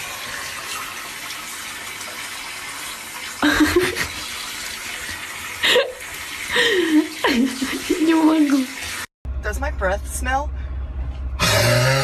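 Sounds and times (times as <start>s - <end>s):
water running in a bathtub: 0.0s - 9.1s.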